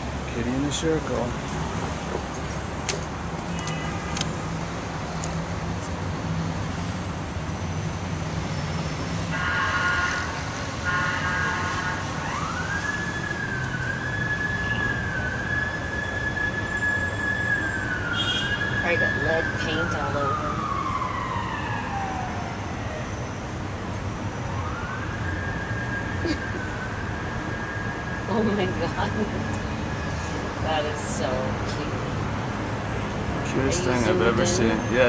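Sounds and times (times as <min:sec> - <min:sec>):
city traffic rumble: 0:00.0 - 0:35.0
siren wailing: 0:09.3 - 0:23.6, 0:24.3 - 0:30.2, 0:33.7 - 0:35.0.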